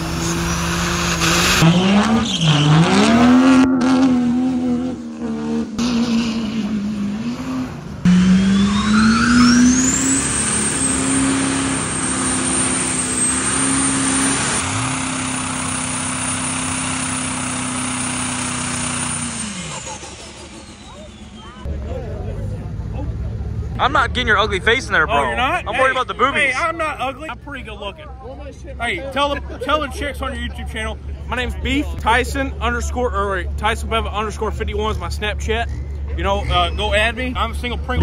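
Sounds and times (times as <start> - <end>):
diesel engine revving: 0.0 - 28.0, 30.1 - 38.0
high whistle: 8.3 - 13.9.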